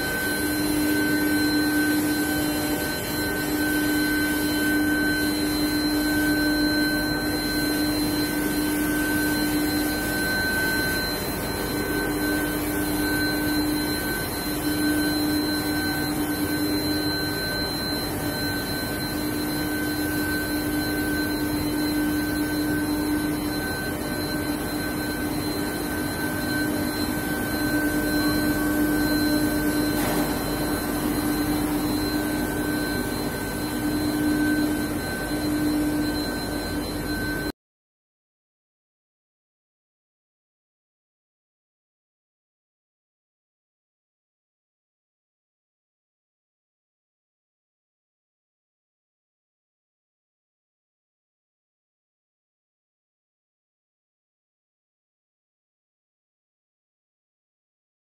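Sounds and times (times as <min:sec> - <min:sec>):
industrial machine hum and whine: 0:00.0 - 0:37.5.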